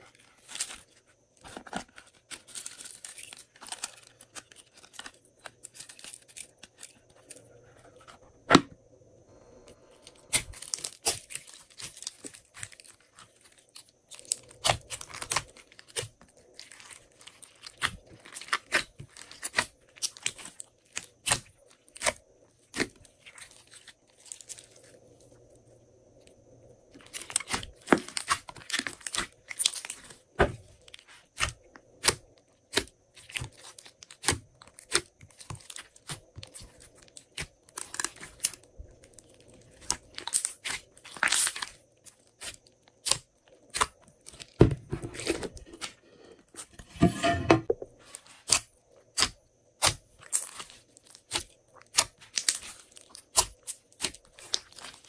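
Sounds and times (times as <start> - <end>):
slime popping and crackling: 31.4 - 41.8, 49.2 - 55.0.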